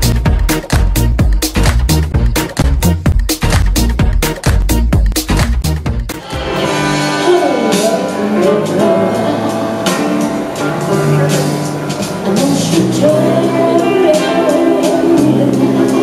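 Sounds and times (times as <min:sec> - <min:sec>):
music with gliding melody: 0:05.9 - 0:16.0.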